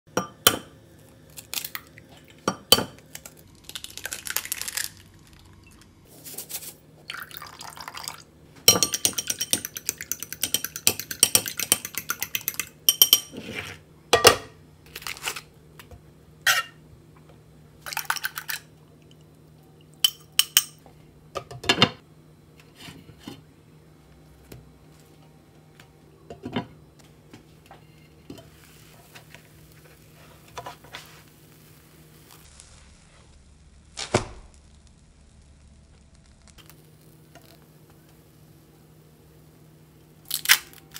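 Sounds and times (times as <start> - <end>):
eggs beaten in glass bowl: 8.7 - 13.3.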